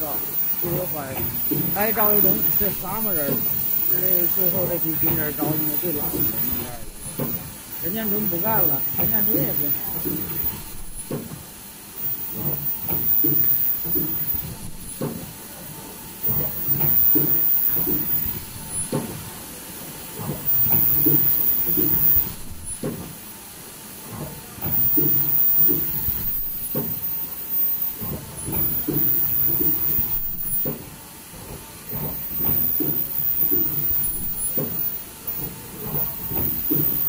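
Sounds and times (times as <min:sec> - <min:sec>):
very high-pitched machine sound: 0:00.0 - 0:11.2
production machine cycling: 0:00.0 - 0:37.0
machine knocks: 0:00.6 - 0:11.5, 0:12.3 - 0:15.4, 0:16.2 - 0:19.3, 0:20.2 - 0:23.2, 0:24.1 - 0:37.0.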